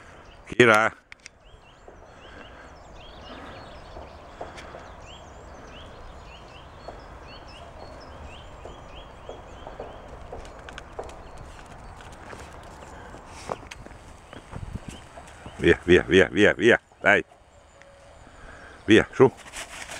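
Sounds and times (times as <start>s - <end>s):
birds chirping: 0.0s - 19.9s
dog paws running on gravel: 8.4s - 15.9s.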